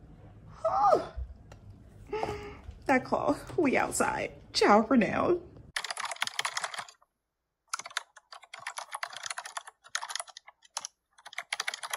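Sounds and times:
rapid keyboard typing clicks: 5.8s - 7.0s, 7.7s - 11.9s.

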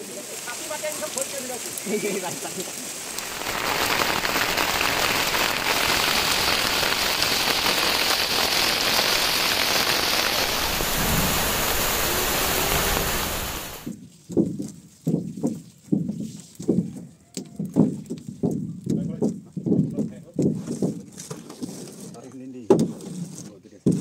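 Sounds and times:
heavy rain: 0.0s - 13.9s
water streaming off a tin roof: 0.0s - 13.9s.

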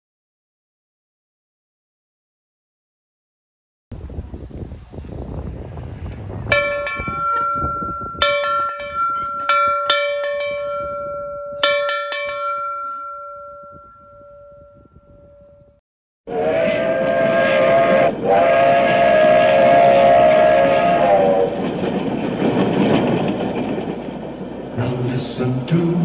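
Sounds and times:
wind rumble on microphone: 3.9s - 11.6s, 13.6s - 26.0s
large metal bell ringing: 6.5s - 15.8s.

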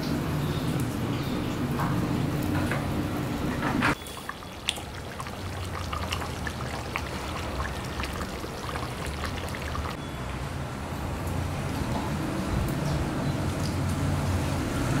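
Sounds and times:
gravy bubbling in a pot: 3.9s - 10.0s
wood fire crackling: 4.0s - 10.0s.

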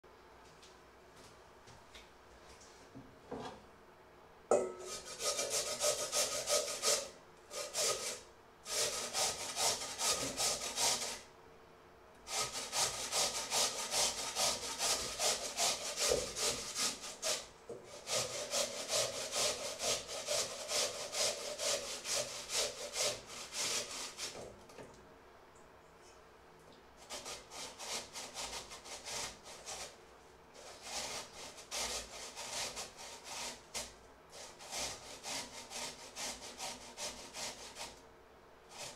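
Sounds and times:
potato grated on metal grater: 4.8s - 11.2s, 12.3s - 24.4s, 27.0s - 30.0s, 30.6s - 38.0s, 38.7s - 38.9s.

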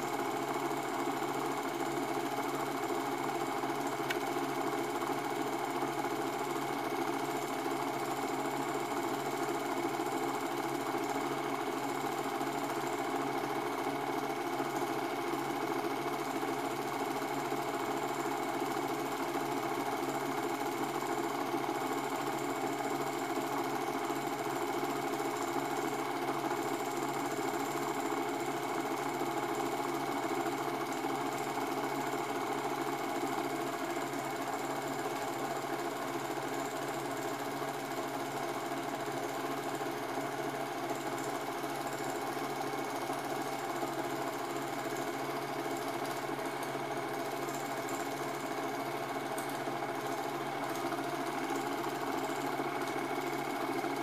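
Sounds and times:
film projector whirring: 0.0s - 54.0s.

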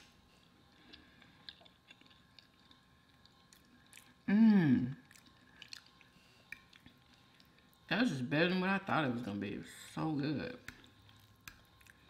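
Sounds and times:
close chewing of food: 0.1s - 8.0s, 10.5s - 12.0s
person humming mmm: 4.3s - 5.0s
wet mouth clicks: 5.1s - 7.6s, 10.7s - 12.0s.

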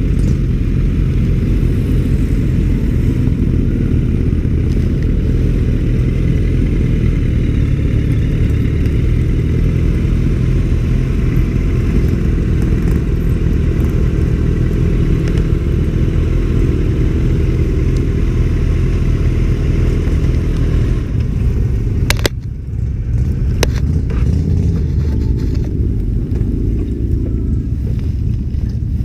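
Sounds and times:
motorcycle engines running: 0.0s - 29.0s.

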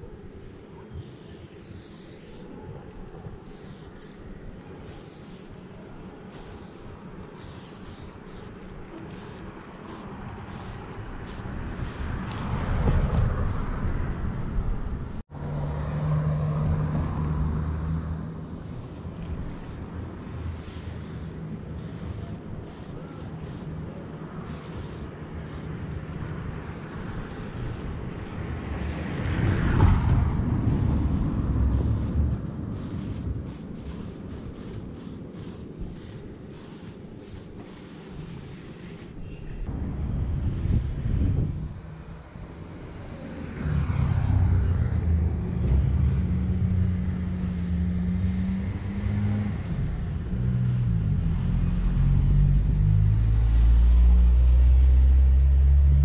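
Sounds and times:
passing motor traffic rumble: 0.0s - 56.0s
spray paint can hissing: 1.0s - 2.6s, 3.4s - 5.6s, 6.3s - 13.8s, 16.9s - 23.8s, 24.4s - 28.1s, 28.7s - 29.2s, 30.6s - 39.3s, 40.5s - 51.8s
low engine tone: 39.7s - 56.0s.

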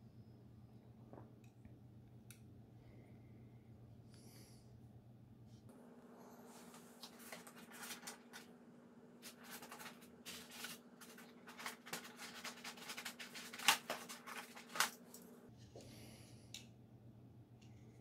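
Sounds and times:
faint steady hum: 0.0s - 18.0s
packaging rustling and clicks: 7.0s - 8.5s, 9.2s - 15.3s.

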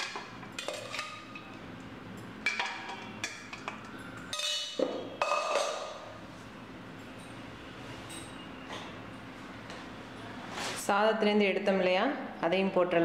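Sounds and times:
steel cookware knocking and clinking: 2.4s - 6.0s.

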